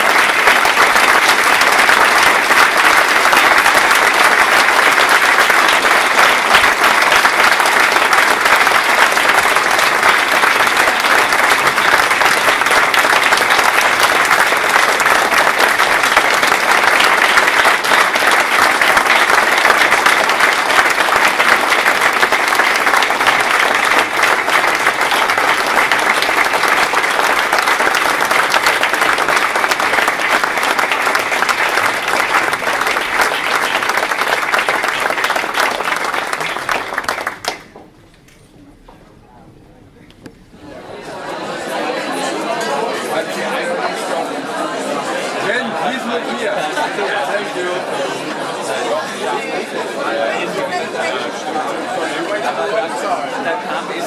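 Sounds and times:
crowd applauding: 0.0 - 38.0.

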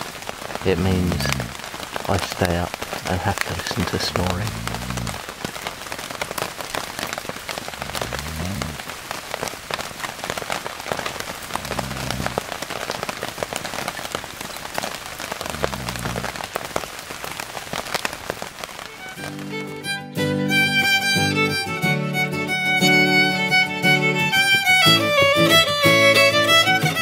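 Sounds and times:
heavy rain pattering: 0.0 - 27.0
person snoring: 0.8 - 1.6, 3.3 - 5.2, 7.7 - 8.8, 11.6 - 12.4, 15.4 - 16.4.

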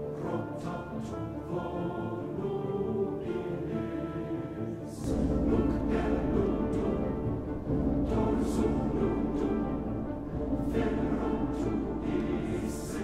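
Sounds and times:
music from television: 0.0 - 13.0.

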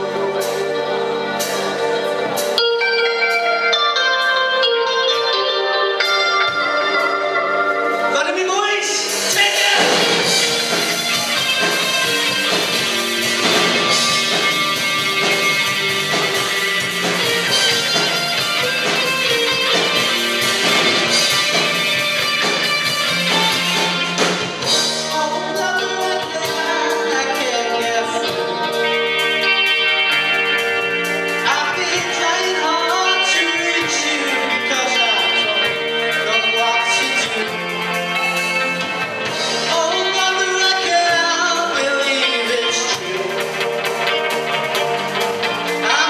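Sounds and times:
bass guitar: 0.0 - 46.0
drums: 0.0 - 46.0
electric guitars: 0.0 - 46.0
man singing through pa: 8.1 - 10.4, 25.1 - 28.5, 31.4 - 37.8, 39.6 - 43.7.

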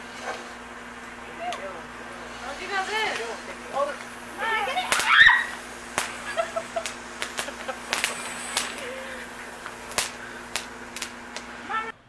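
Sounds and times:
crackling pops: 0.0 - 11.9
loud firework burst: 0.0 - 11.9
firework hissing: 0.0 - 12.0.

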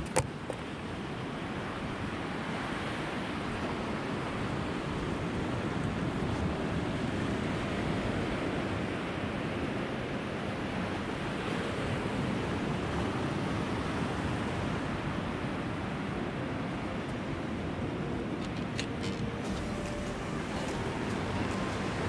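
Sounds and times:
ocean surf on beach: 0.0 - 22.0
wind buffeting microphone: 18.2 - 22.0.

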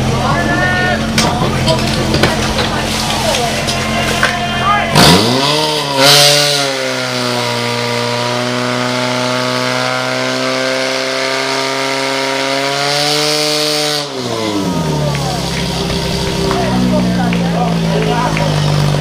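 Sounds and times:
small pump engine at high revs: 4.9 - 19.0.

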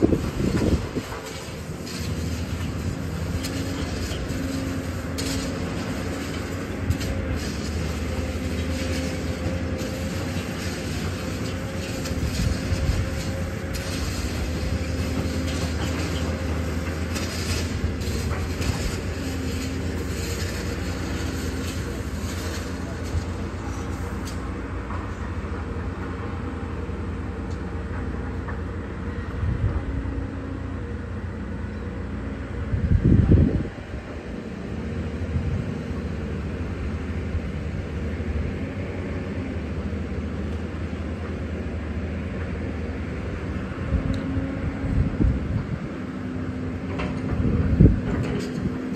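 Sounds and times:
machinery engine drone: 0.0 - 48.9
short clicks and scrapes: 0.1 - 25.0, 48.0 - 48.9.

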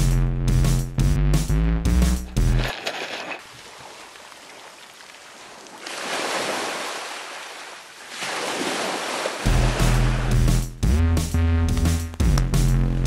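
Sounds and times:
music: 0.0 - 2.7, 9.5 - 13.0
waves washing onto shingle: 2.7 - 10.3.

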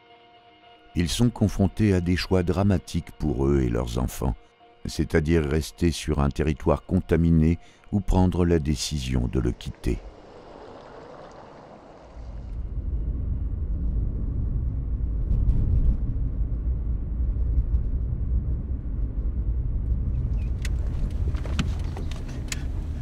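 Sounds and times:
car engine and road rumble: 9.1 - 23.0.

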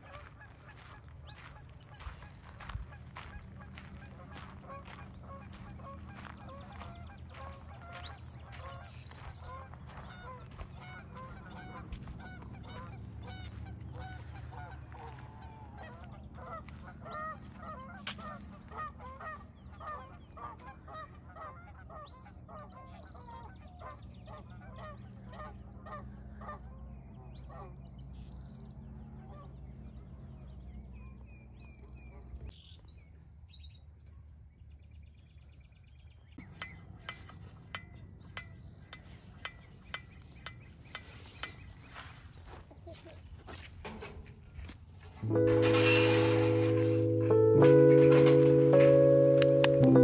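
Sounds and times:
geese honking: 0.0 - 26.7, 45.2 - 50.0.

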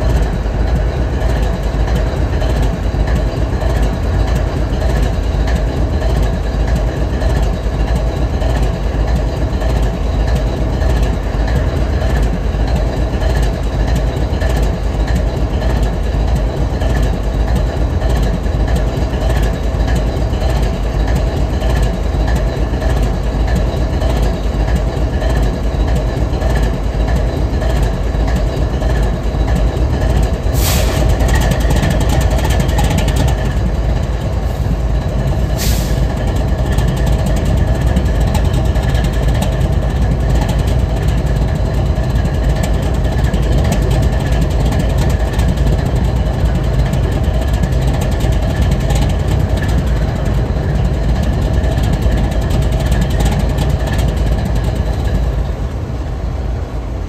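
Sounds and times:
diesel locomotives idling: 0.0 - 57.0
short air hisses: 30.5 - 31.1, 35.5 - 36.1.

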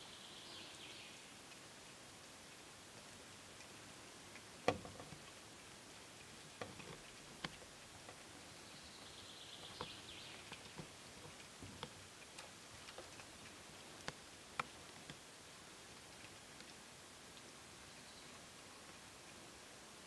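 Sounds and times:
sharp clicks and knocks: 4.6 - 5.4, 6.6 - 8.2, 9.6 - 15.2.

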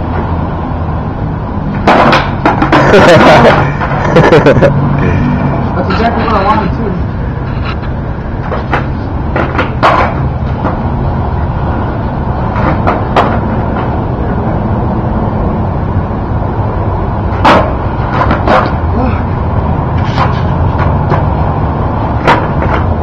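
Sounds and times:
steady low rumble: 0.0 - 23.0
skateboard clacking on concrete: 1.7 - 4.0, 8.4 - 10.8, 12.5 - 14.0, 17.3 - 18.8, 20.0 - 21.3, 22.2 - 23.0.

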